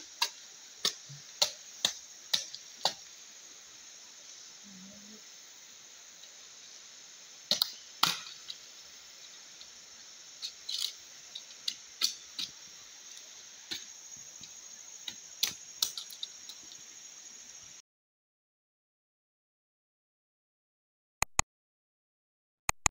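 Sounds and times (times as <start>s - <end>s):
forest insects droning: 0.0s - 17.8s
machete chopping bamboo: 0.2s - 3.0s, 7.5s - 8.3s.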